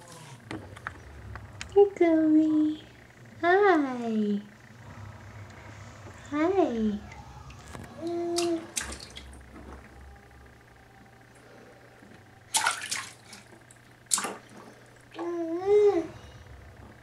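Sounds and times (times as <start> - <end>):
water splashing in a bathtub: 7.0 - 9.9, 12.4 - 15.6.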